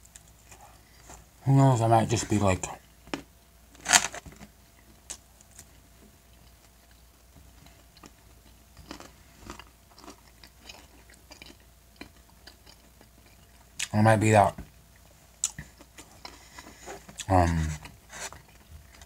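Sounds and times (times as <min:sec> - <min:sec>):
person chewing: 0:05.1 - 0:13.9, 0:15.0 - 0:19.0.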